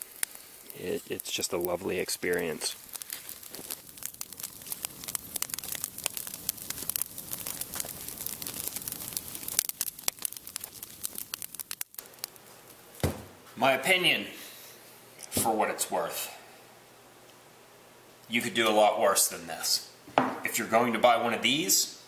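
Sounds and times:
wood fire crackling and popping: 0.0s - 13.9s.

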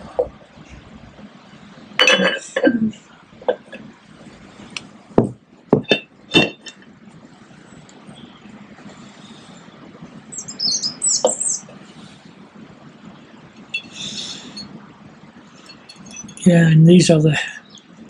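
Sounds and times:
bird chirping: 8.1s - 8.6s, 9.8s - 11.8s, 17.6s - 18.0s.

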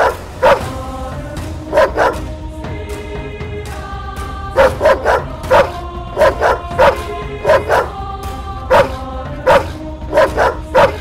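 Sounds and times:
dog barking: 0.0s - 0.7s, 1.7s - 2.2s, 4.6s - 8.0s, 8.7s - 11.0s
background music: 0.0s - 11.0s.

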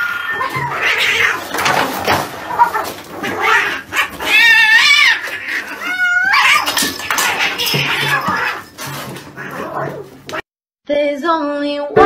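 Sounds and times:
cat yowling: 0.0s - 1.8s, 2.4s - 10.4s
cats squabbling: 0.0s - 10.5s.

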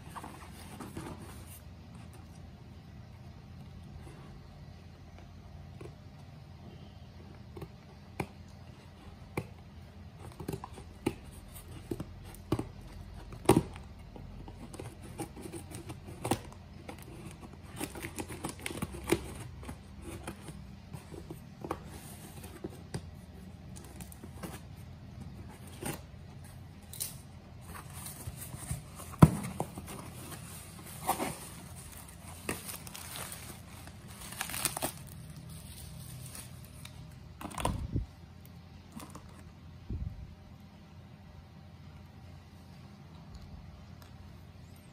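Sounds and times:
bubble wrap crinkling: 27.6s - 37.7s.

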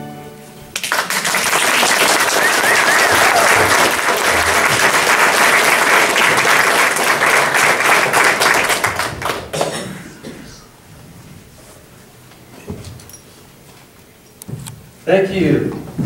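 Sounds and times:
audience applauding: 0.7s - 10.0s.

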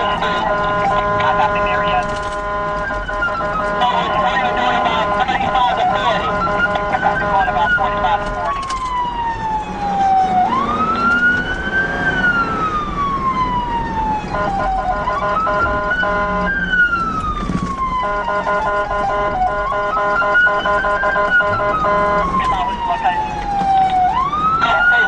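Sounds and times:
engine and road noise: 0.0s - 25.0s
police siren wailing: 0.0s - 25.0s.

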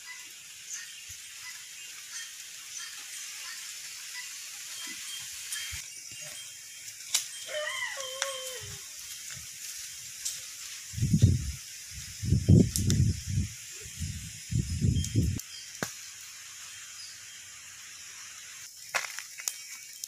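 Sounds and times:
steady high hiss: 0.0s - 20.0s
whining animal call: 7.4s - 8.9s.

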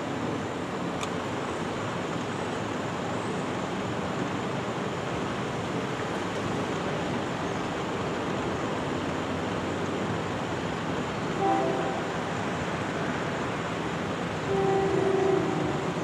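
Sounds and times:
train horn chord: 11.4s - 12.3s, 14.4s - 16.0s.

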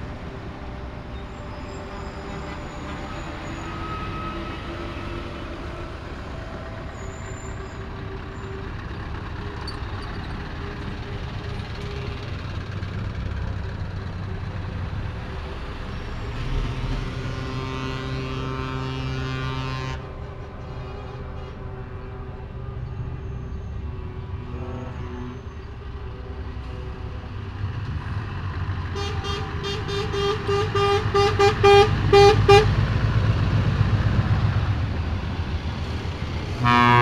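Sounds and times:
heavy trucks driving past: 0.0s - 37.0s
steady horn tone: 16.3s - 27.2s, 29.0s - 32.8s, 36.5s - 37.0s.

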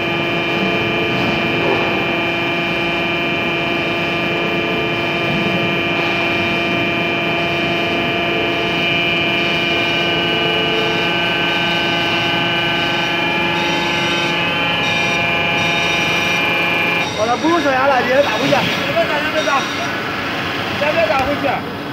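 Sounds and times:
hydraulic machine whine: 0.0s - 21.9s
low machine hum: 0.0s - 21.9s.

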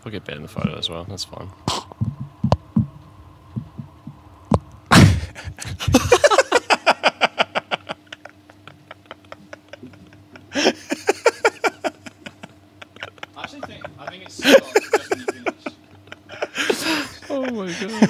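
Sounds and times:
muffled thumps on microphone: 1.7s - 6.2s
men laughing hard: 4.9s - 18.0s.

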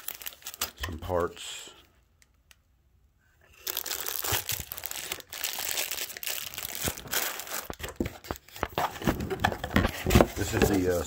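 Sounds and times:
plastic bag crinkling: 0.0s - 0.8s, 3.6s - 9.4s.

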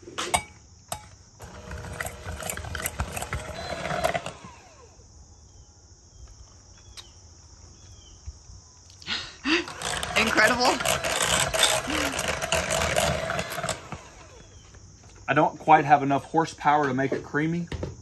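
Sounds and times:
electric hand mixer running: 1.4s - 5.0s, 9.6s - 14.6s.

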